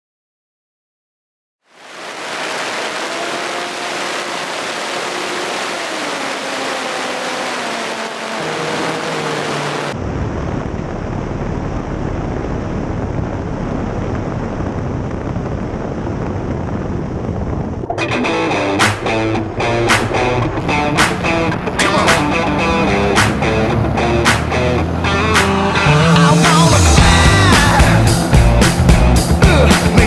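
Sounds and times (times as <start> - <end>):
rush of airflow: 1.7 - 25.5
propeller engine wavering: 1.7 - 30.0
wind rumble on microphone: 9.2 - 18.2.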